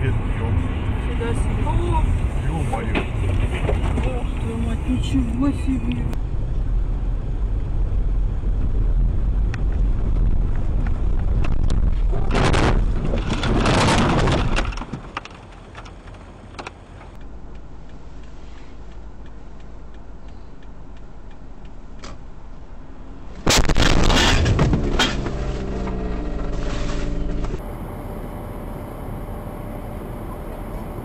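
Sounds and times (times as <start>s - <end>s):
road and wind noise: 0.0s - 31.0s
car cabin hum: 16.2s - 31.0s.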